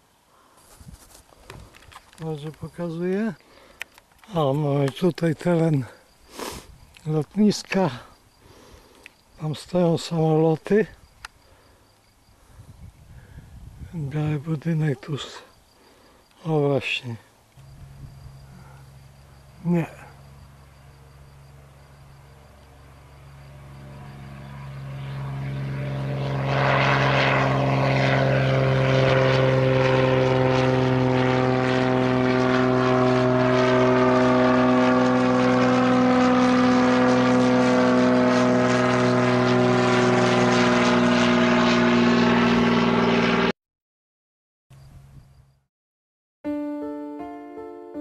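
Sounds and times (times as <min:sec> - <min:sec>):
propeller plane engine droning: 0:00.2 - 0:43.5.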